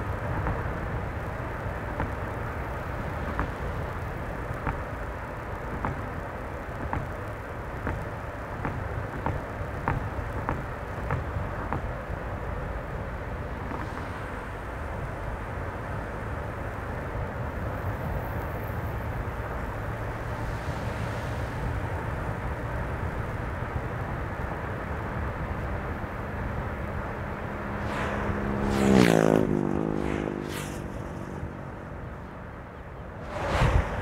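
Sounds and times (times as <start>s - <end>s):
car road and tyre noise: 0.0s - 34.0s
vehicle passing by: 26.8s - 34.0s.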